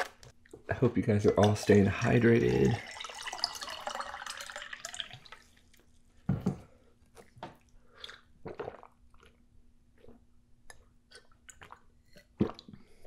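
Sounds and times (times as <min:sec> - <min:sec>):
water poured into glass with ice: 0:02.1 - 0:05.6
person gulping: 0:07.1 - 0:13.0.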